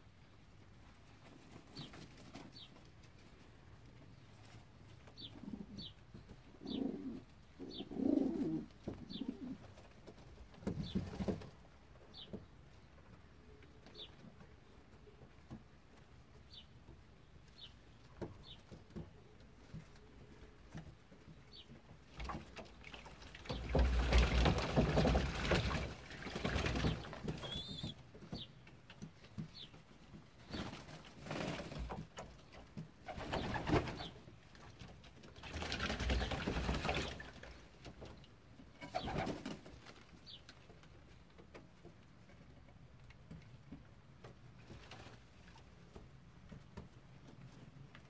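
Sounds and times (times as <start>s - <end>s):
pigeons cooing: 5.2s - 9.7s
wings flapping: 23.3s - 28.0s, 33.0s - 34.2s, 35.3s - 37.5s, 38.8s - 40.1s.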